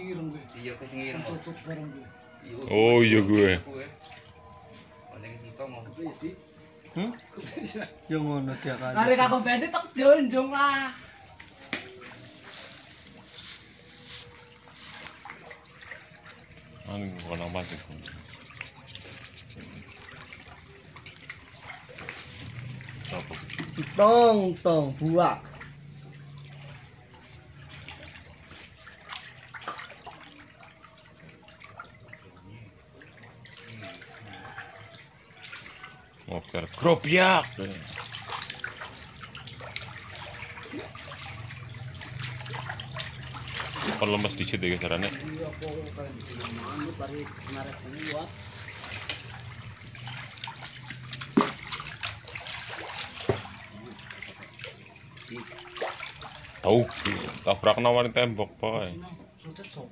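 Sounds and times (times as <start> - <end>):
fish thrashing and splashing: 10.9 - 58.6.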